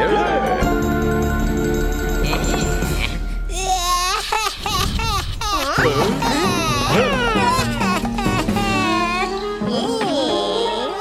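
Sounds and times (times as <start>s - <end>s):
high-pitched cartoon vocalizing: 4.2s - 11.0s.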